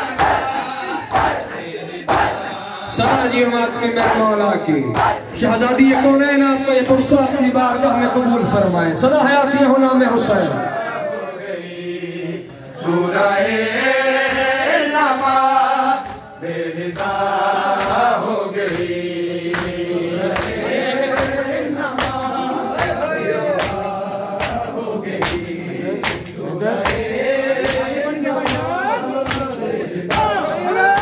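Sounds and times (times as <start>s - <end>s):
men chanting in unison: 0.0s - 31.0s
chest-beating slaps: 16.0s - 16.3s, 16.9s - 31.0s.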